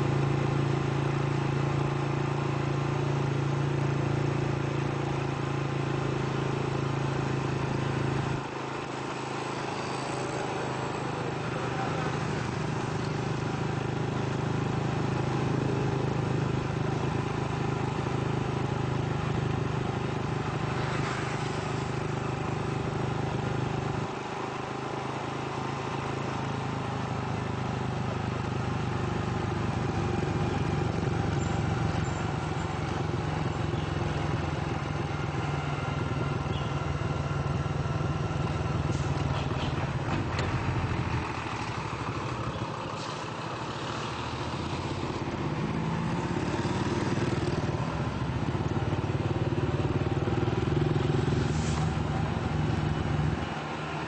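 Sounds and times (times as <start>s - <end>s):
road and traffic noise: 0.0s - 54.0s
vehicle engine running: 0.0s - 54.0s
vehicle passing by: 20.4s - 22.8s, 40.4s - 48.6s, 49.2s - 54.0s.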